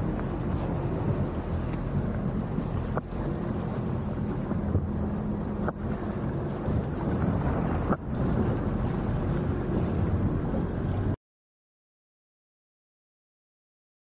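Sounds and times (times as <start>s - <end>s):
jet ski engine running: 0.0s - 11.2s
water wash: 0.0s - 11.2s
wind on microphone: 0.0s - 11.2s.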